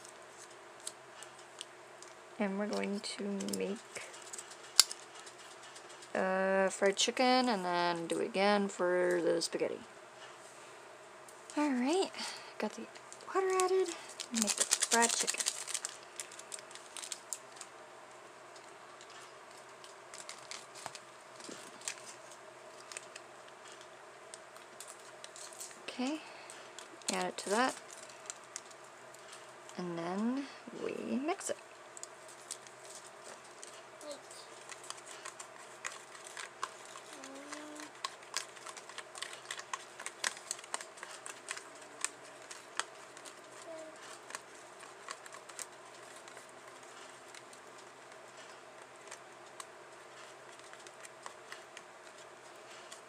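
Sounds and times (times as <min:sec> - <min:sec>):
foil packet crinkling: 0:02.8 - 0:06.2, 0:11.6 - 0:17.8, 0:18.5 - 0:29.8, 0:31.8 - 0:53.0.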